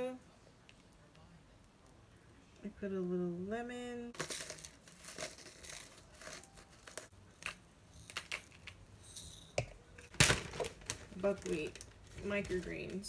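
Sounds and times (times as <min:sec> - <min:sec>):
pepper shaker clicks and rustles: 0:04.2 - 0:09.6.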